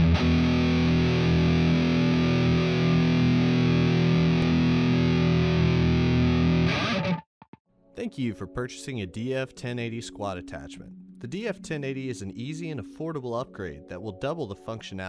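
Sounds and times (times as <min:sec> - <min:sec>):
distorted electric guitar chord: 0:00.0 - 0:07.2.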